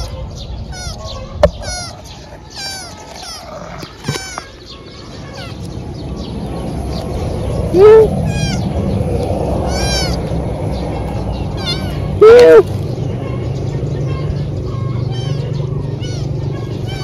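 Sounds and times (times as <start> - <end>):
birds chirping: 0.0 - 17.0
kitten meowing: 2.5 - 4.5, 7.7 - 8.6, 9.7 - 10.3, 11.6 - 12.7.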